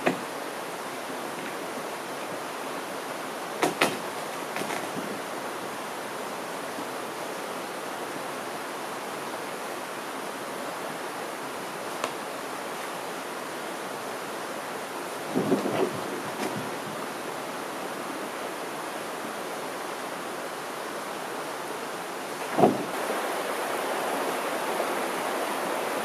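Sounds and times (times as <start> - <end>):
steady rushing hiss: 0.0 - 26.0
canoe knocking on rocks: 3.6 - 4.0, 22.4 - 22.9.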